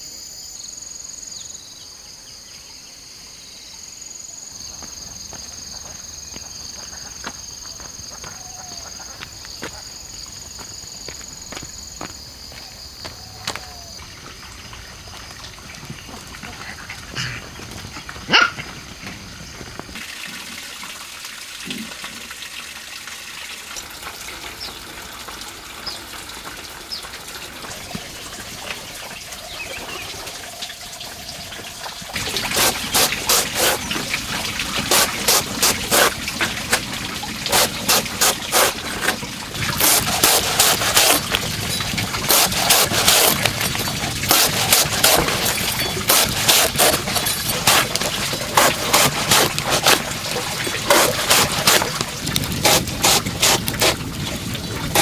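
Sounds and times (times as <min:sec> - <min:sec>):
faint outdoor background: 0:00.0 - 0:55.0
knife chopping banana trunk: 0:37.5 - 0:41.5, 0:42.2 - 0:50.2, 0:50.8 - 0:54.0.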